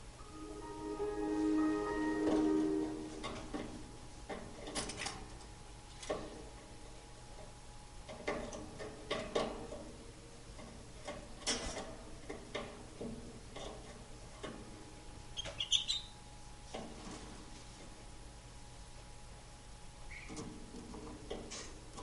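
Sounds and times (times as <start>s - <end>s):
canary chirping: 15.4s - 16.2s.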